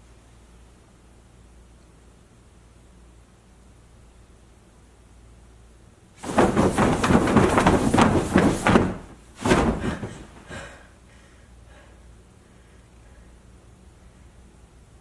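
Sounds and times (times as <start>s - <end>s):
bedding rustling and thumping: 6.2s - 10.8s.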